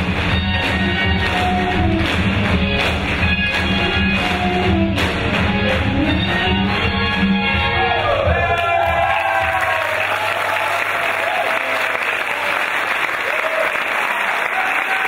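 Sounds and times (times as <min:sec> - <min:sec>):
crowd cheering: 0:07.7 - 0:15.0
audience applauding: 0:08.4 - 0:15.0.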